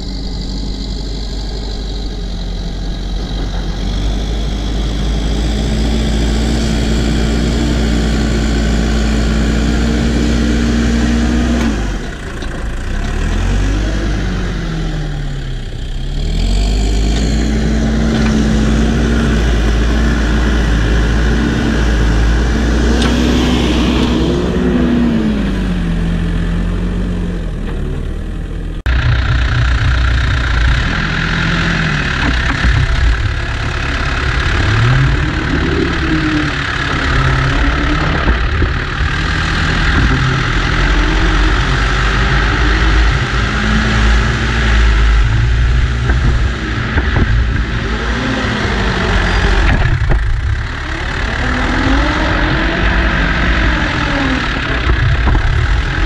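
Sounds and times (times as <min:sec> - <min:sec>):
diesel engine lugging under load: 0:00.0 - 0:56.0
rough engine close by: 0:00.0 - 0:56.0.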